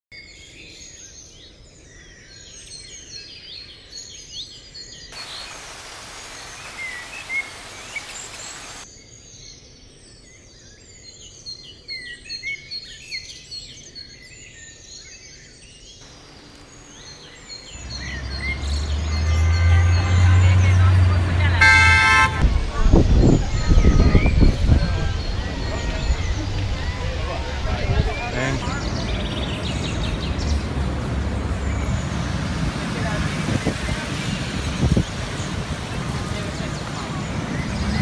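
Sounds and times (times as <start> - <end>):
steady hiss: 5.2 - 8.8, 16.0 - 17.8
birds chirping and singing: 6.6 - 31.0
low traffic rumble: 16.0 - 38.0.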